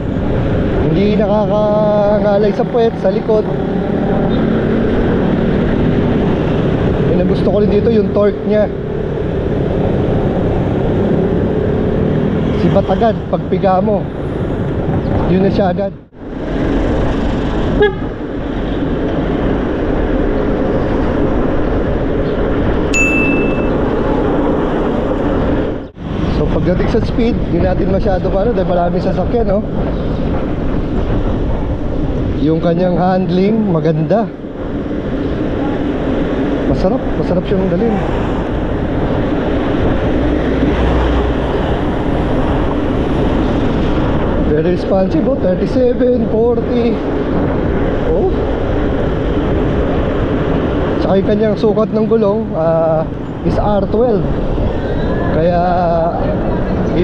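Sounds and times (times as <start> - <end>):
wind and road rush: 0.0 - 57.0
brief high beep: 23.0 - 23.8.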